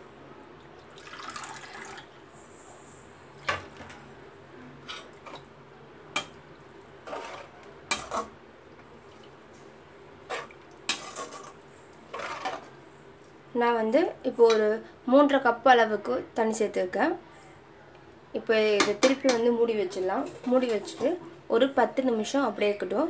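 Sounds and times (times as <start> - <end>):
spoon clinking and scraping pot: 7.0 - 8.3, 10.3 - 12.7.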